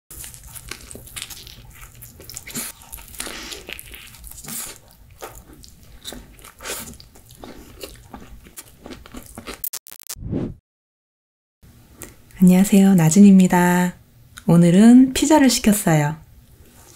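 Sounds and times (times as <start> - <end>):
pizza crust crunching: 0.1 - 10.0.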